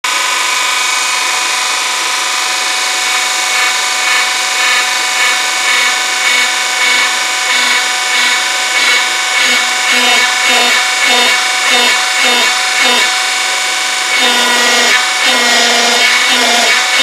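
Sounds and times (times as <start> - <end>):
hydraulic pump whining: 0.0 - 17.0.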